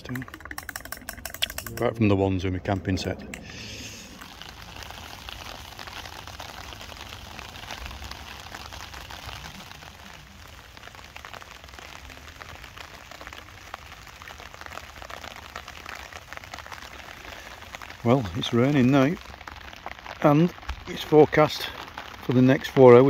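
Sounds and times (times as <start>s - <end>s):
rain pattering on a tarp: 0.0s - 23.0s.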